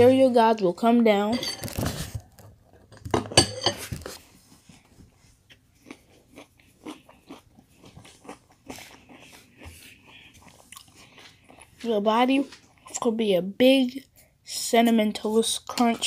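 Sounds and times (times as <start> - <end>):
person chewing cereal: 4.1 - 13.2.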